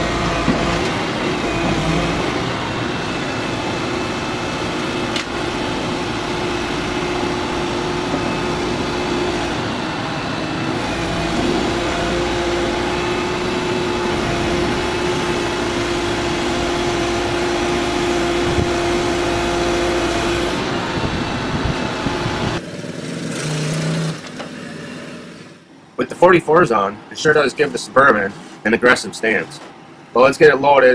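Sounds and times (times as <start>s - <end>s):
excavator diesel engine running: 0.0s - 23.2s
constant humming tone: 0.0s - 24.7s.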